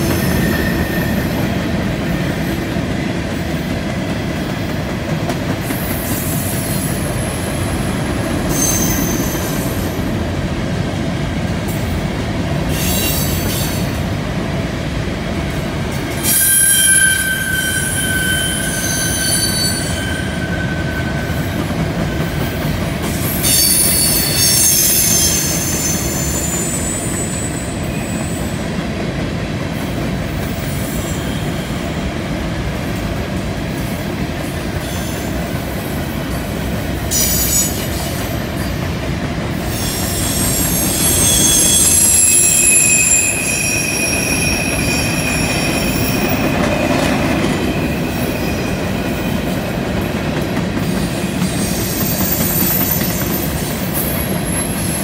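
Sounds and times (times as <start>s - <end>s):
train wheels rumbling on rail: 0.0s - 55.0s
high-pitched wheel squeal: 8.5s - 9.9s, 16.2s - 21.6s, 23.3s - 28.4s, 39.7s - 49.3s, 51.4s - 55.0s.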